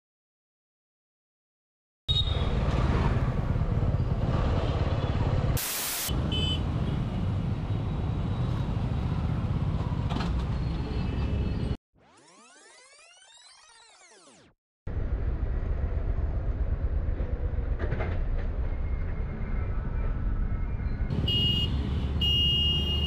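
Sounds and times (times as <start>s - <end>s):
traffic engines rumbling: 2.1s - 11.8s, 14.9s - 23.0s
brief hiss: 5.6s - 6.1s
sweeping electronic effect: 12.0s - 14.5s
vehicle horn beeps: 21.1s - 23.0s.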